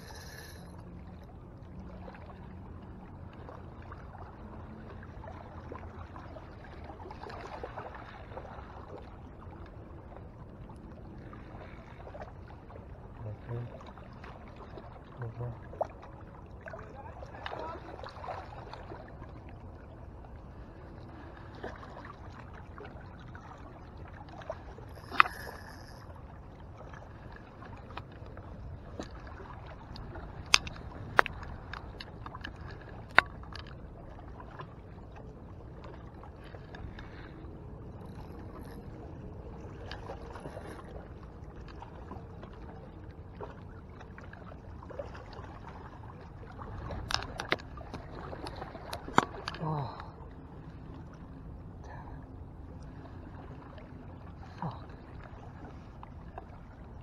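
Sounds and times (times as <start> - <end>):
fishing reel clicks: 0.0 - 0.7, 25.0 - 26.0
water lapping: 0.0 - 57.0
wind: 0.0 - 57.0.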